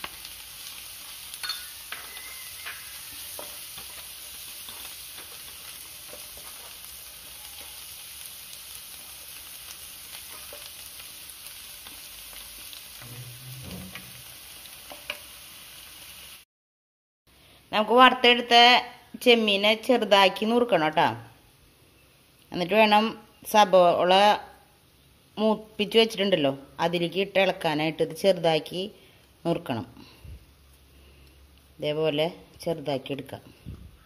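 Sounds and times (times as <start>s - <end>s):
onions sizzling in oil: 0.0s - 16.4s.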